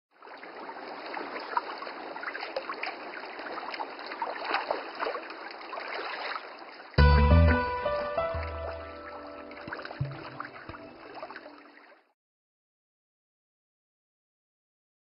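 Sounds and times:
water drips and gurgles: 0.1 - 7.0, 7.8 - 12.1
running water trickling: 0.2 - 12.1.

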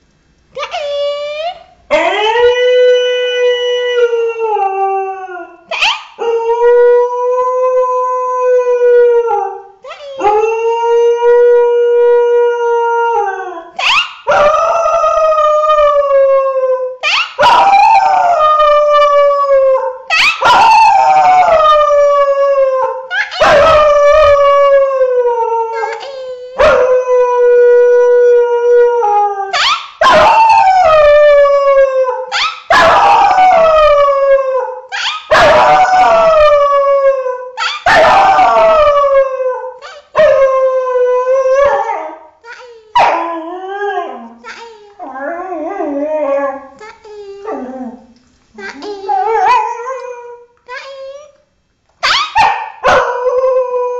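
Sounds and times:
dog howling: 10.2 - 26.0, 26.6 - 42.2, 48.8 - 50.4.

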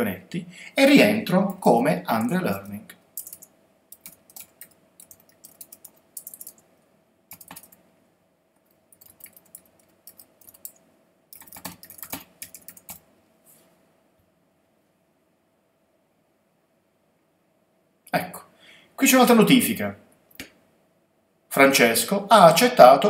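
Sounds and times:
computer keyboard typing: 1.5 - 6.6, 7.3 - 7.8, 8.9 - 13.0.

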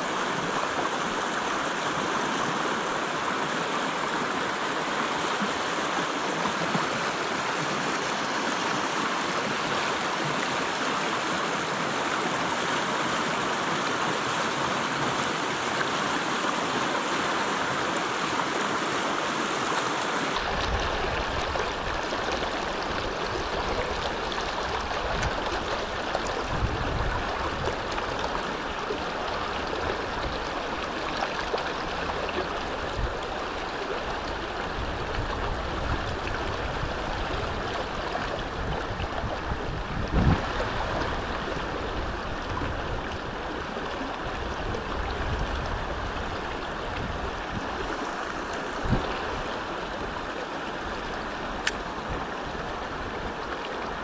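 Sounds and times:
river rushing over stones: 0.0 - 54.0.

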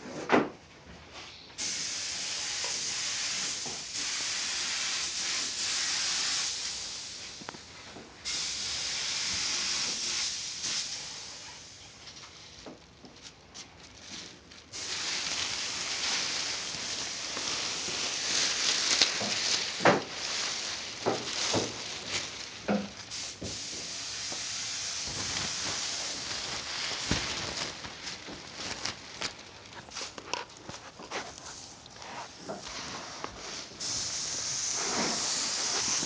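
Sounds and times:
spray paint hissing: 1.6 - 7.4, 8.2 - 11.8, 14.7 - 27.2, 32.7 - 36.0
handling rustles and knocks: 12.1 - 24.4, 25.0 - 33.7.

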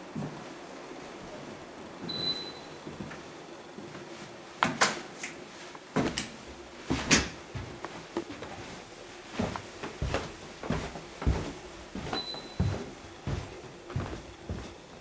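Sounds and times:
footsteps on carpeted stairs: 0.1 - 0.6, 5.9 - 15.0.

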